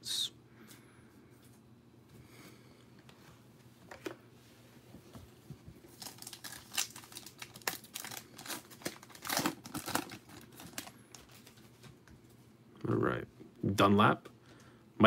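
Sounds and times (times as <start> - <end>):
foil wrapper tearing and crinkling: 5.9 - 11.5.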